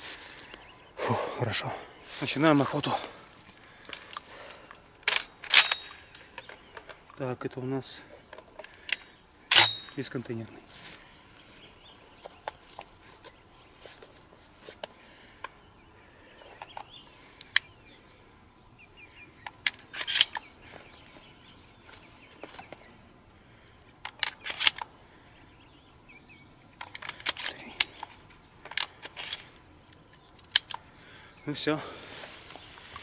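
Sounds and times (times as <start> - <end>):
shotgun shells loaded clicking: 3.8 - 7.2, 19.4 - 20.5, 24.0 - 24.9, 26.8 - 29.5, 30.4 - 30.9.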